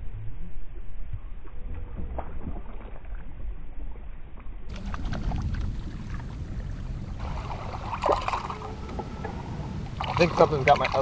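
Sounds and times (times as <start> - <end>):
small splashes and knocks: 4.7 - 9.1
water sloshing against kayak hull: 4.7 - 11.0.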